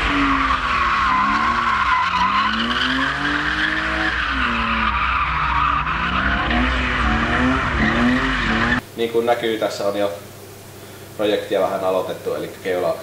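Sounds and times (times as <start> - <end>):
car engine revving: 0.0 - 8.8.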